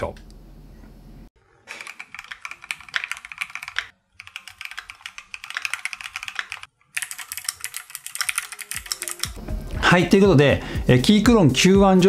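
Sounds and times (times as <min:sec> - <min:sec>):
fast mechanical keyboard typing: 0:01.7 - 0:09.4.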